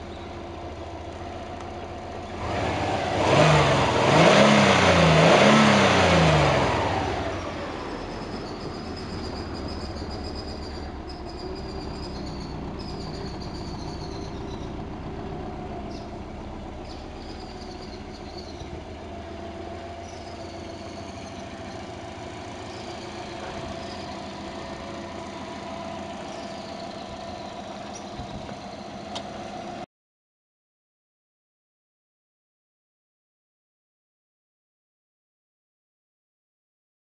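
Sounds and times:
car engine idling: 0.0s - 29.8s.

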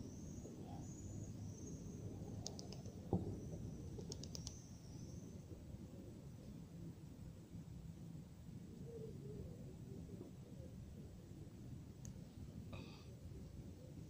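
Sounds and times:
low outdoor rumble: 0.0s - 14.0s
sharp clicks: 2.4s - 2.9s, 4.0s - 4.6s.

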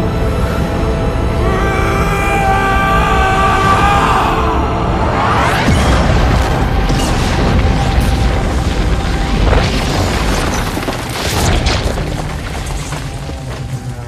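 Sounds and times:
film score music: 0.0s - 14.0s
deep booming and rumbling: 4.8s - 14.0s
debris crashing: 5.6s - 14.0s.

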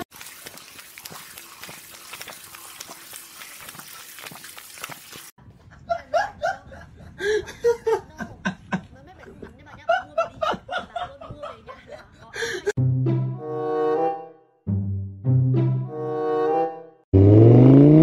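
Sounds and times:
water running from tap: 0.0s - 5.4s.

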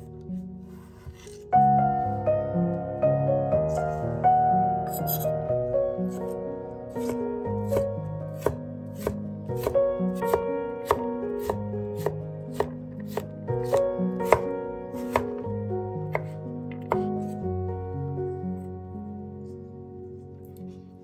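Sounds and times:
knife chopping carrot on wooden board: 6.9s - 17.4s.

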